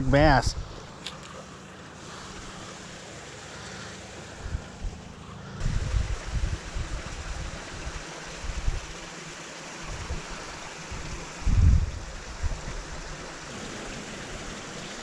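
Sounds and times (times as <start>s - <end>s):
flowing water rushing: 0.7s - 15.0s
wind buffeting microphone: 5.6s - 9.0s, 9.8s - 15.0s.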